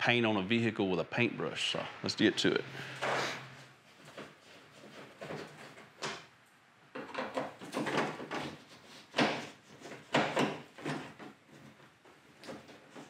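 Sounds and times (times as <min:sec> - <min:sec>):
screwdriver scraping on plastic: 0:04.0 - 0:06.2, 0:07.0 - 0:13.0.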